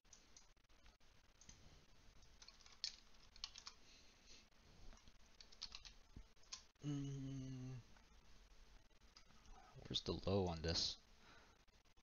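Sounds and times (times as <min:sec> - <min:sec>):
computer keyboard and mouse clicks: 0:02.2 - 0:03.8, 0:04.9 - 0:06.7.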